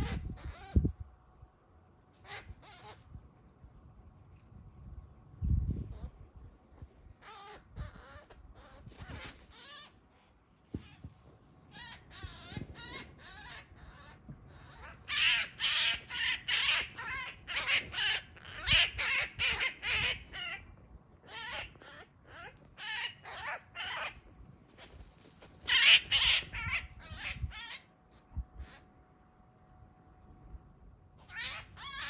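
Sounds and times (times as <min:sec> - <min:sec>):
magpie harsh distress calls: 0:00.0 - 0:00.8, 0:02.2 - 0:03.0, 0:07.2 - 0:10.0, 0:11.7 - 0:24.2, 0:25.6 - 0:27.9, 0:31.2 - 0:32.0.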